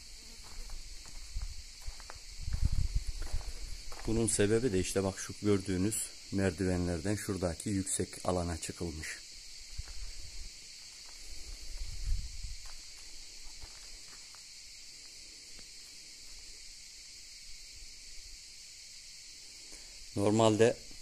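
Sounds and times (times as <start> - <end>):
insects shrilling: 0.0 - 21.0
low rumbling on microphone: 2.4 - 4.0.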